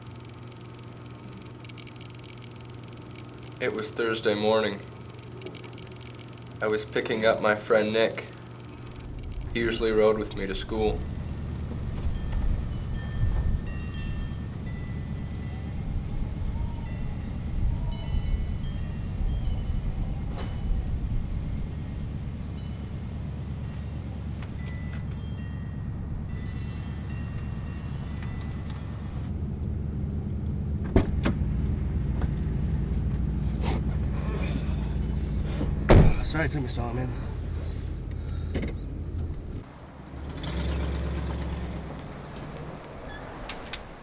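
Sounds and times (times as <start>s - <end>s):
car engine running: 0.0s - 16.5s, 20.6s - 43.0s.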